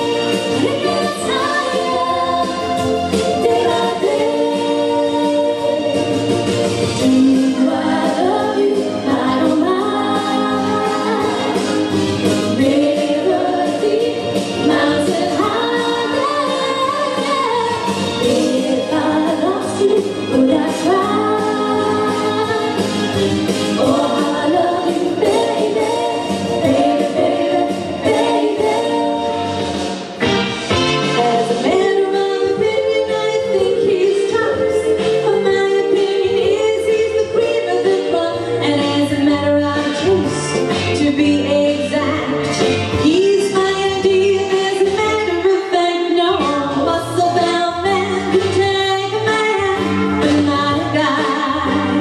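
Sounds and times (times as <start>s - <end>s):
female vocal trio singing: 0.0s - 6.2s, 7.0s - 22.9s, 23.7s - 29.8s, 31.2s - 42.2s
backing music: 0.0s - 52.0s.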